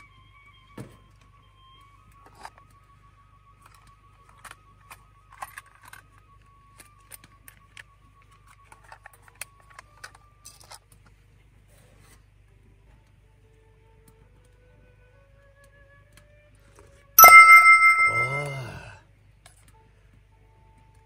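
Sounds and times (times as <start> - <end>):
faint high tone: 17.2 - 19.0.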